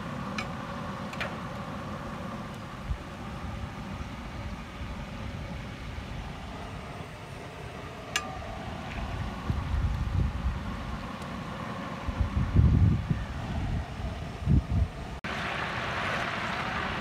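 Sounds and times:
oil sizzling and bubbling: 0:15.3 - 0:17.0.

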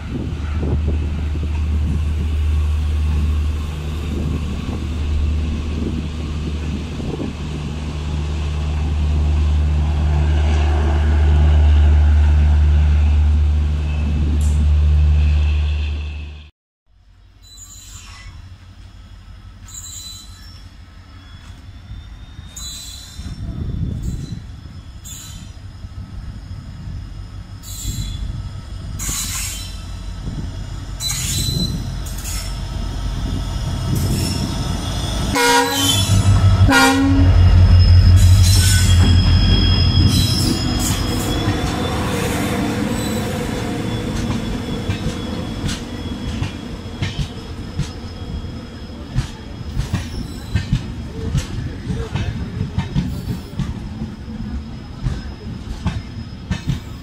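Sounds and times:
locomotive engine rumble: 0:00.0 - 0:16.2, 0:25.6 - 0:57.0
high wheel squeal: 0:17.4 - 0:52.1, 0:52.8 - 0:57.0
train wheels rushing: 0:21.4 - 0:57.0
rail clatter: 0:31.0 - 0:48.2, 0:49.0 - 0:54.0
locomotive horn blasts: 0:35.3 - 0:39.2.

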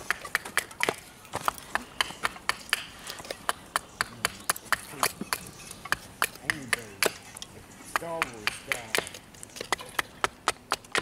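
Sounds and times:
hatchet chopping wood: 0:00.0 - 0:11.0.

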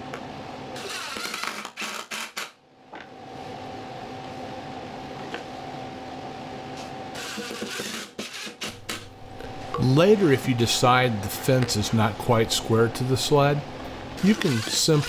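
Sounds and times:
steady hum: 0:08.6 - 0:15.0
cordless drill driving screws: 0:14.2 - 0:15.0.

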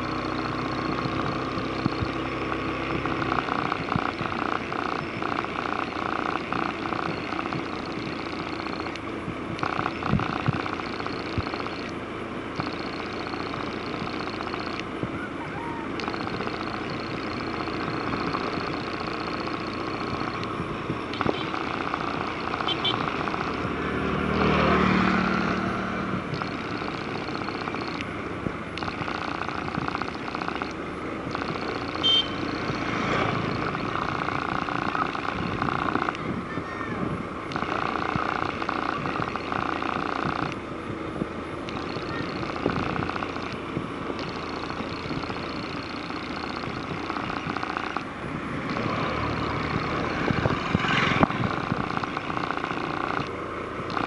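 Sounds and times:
motorbike engine running: 0:00.0 - 0:54.0
rapid pulsing buzz: 0:00.0 - 0:54.0
road and wind noise: 0:00.0 - 0:54.0
short high beep: 0:32.0 - 0:32.5.

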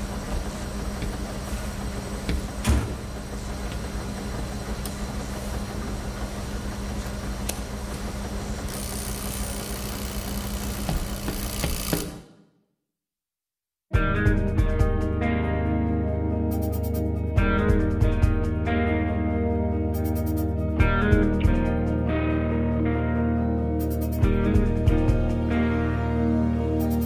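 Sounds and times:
washing machines rumbling: 0:00.0 - 0:12.3.

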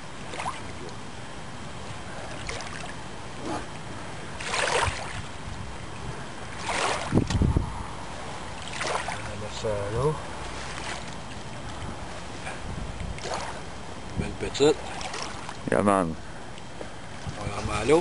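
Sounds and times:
water noise: 0:00.0 - 0:18.0
wind: 0:00.0 - 0:18.0
wind buffeting microphone: 0:04.4 - 0:09.0, 0:11.1 - 0:15.1, 0:17.0 - 0:18.0.

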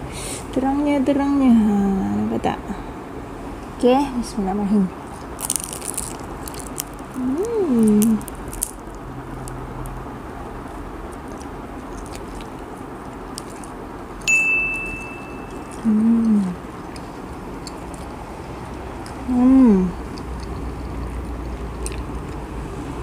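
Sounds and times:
closed-mouth hum: 0:04.7 - 0:23.0
person chewing: 0:05.1 - 0:22.6
high steady chime-like tone: 0:14.3 - 0:15.9.

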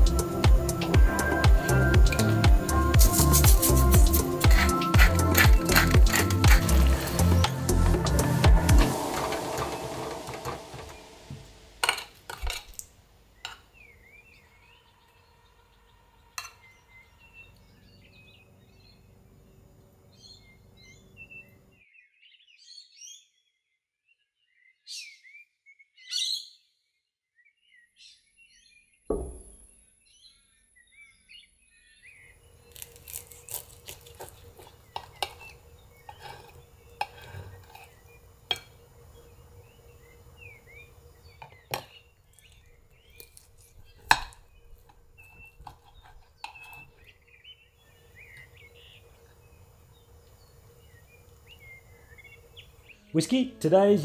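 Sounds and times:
small birds chirping: 0:12.7 - 0:54.0
soft thump: 0:29.1 - 0:29.5.

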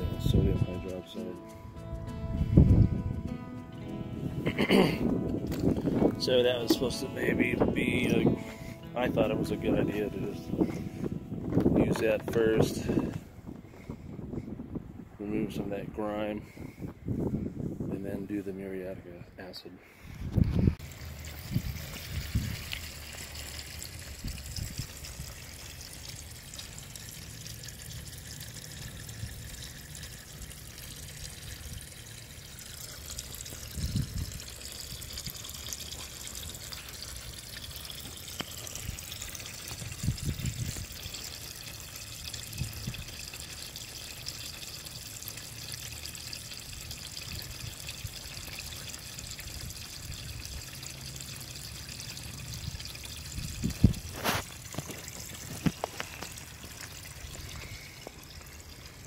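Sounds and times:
liquid pouring into plastic tub: 0:20.8 - 0:59.0.

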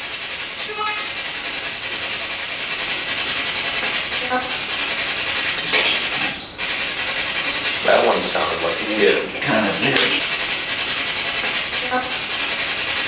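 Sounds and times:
loud steady hiss: 0:00.0 - 0:13.0
faint voice-like fragment: 0:00.6 - 0:01.1.

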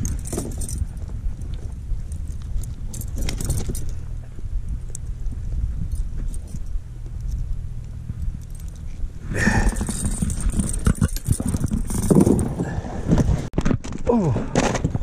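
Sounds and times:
low handling rumble: 0:00.0 - 0:13.5.

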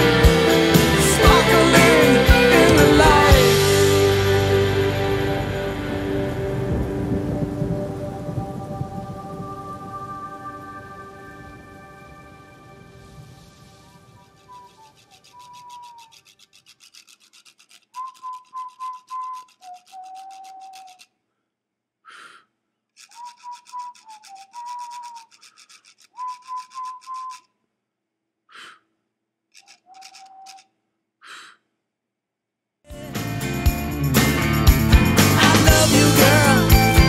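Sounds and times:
scratchy rubbing noise: 0:13.9 - 0:21.0
person whistling a slow tune: 0:14.4 - 0:16.0, 0:18.0 - 0:21.0, 0:23.1 - 0:25.3, 0:26.2 - 0:27.5, 0:29.9 - 0:30.6
short breathy bursts: 0:21.3 - 0:22.6, 0:28.5 - 0:29.0, 0:31.2 - 0:31.7.

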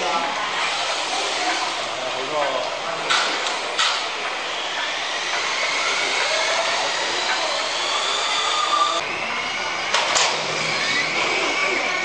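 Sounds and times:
small motors whining: 0:00.0 - 0:12.0
tyres hissing on concrete: 0:00.4 - 0:02.4.

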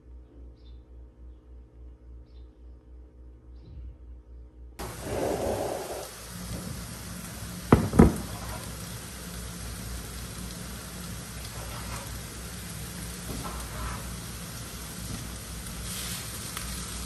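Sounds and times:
vegetables sizzling in a frying pan: 0:04.8 - 0:17.0
spatula stirring: 0:11.4 - 0:12.5.

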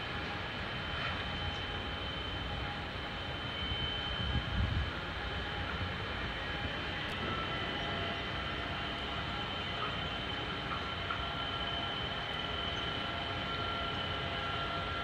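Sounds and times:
high-pitched whines: 0:00.0 - 0:15.0
ship engines droning: 0:00.0 - 0:15.0.

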